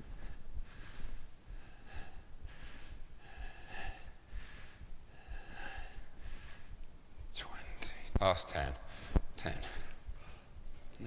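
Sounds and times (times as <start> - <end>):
man breathing hard: 0.0 - 6.9, 8.8 - 10.6.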